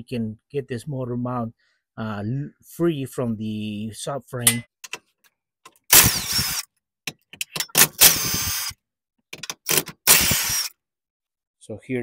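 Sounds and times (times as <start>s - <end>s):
impact wrench spinning nuts: 5.9s - 6.6s, 7.4s - 8.7s, 9.4s - 10.7s.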